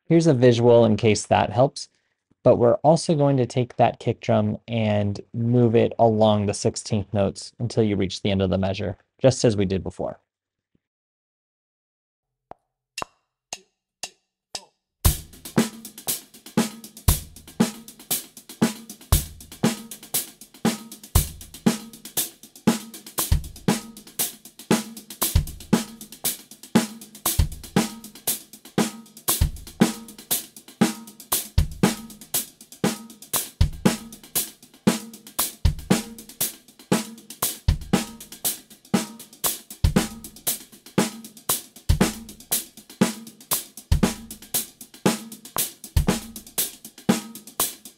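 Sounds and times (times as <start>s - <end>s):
drum kit groove: 15.0s - 47.9s.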